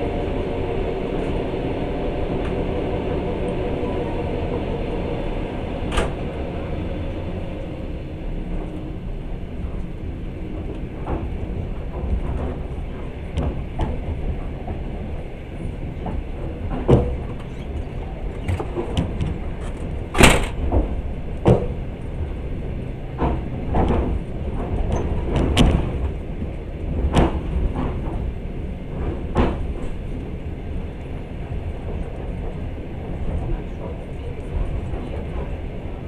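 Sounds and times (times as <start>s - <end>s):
train carriage rumble: 0.0s - 36.0s
train knocks and clanks: 0.0s - 36.0s.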